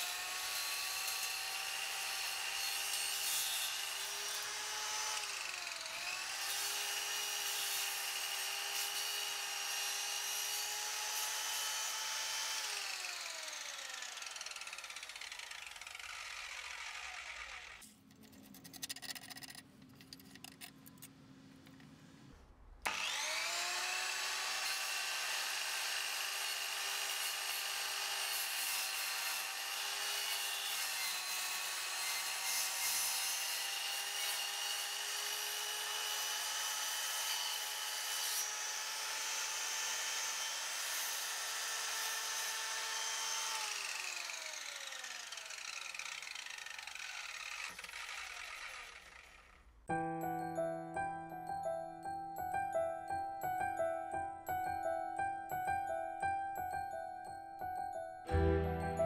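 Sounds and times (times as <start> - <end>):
circular saw whining: 0.0 - 17.9, 22.8 - 49.8.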